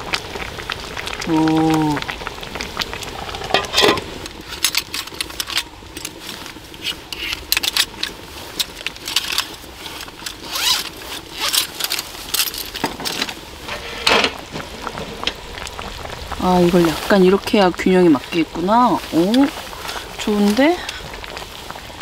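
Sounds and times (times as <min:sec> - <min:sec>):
pot scraping on burner: 0:02.8 - 0:21.9
zipper: 0:10.4 - 0:11.7.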